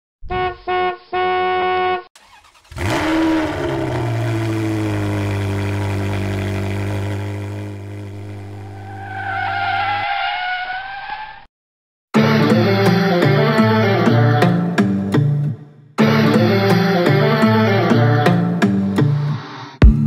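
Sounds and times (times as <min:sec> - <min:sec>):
car engine starting and idling: 0:02.2 - 0:09.7.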